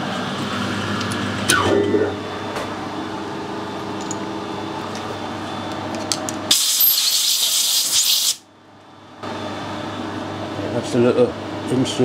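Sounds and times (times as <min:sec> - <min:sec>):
workshop machine hum: 0:00.0 - 0:12.0
pressurised spray hissing: 0:06.5 - 0:08.4.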